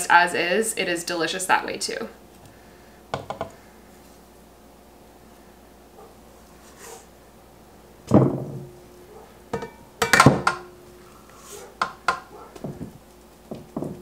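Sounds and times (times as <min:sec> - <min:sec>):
heavy thud: 0:08.1 - 0:08.7
mixing bowls clanking: 0:09.6 - 0:12.8.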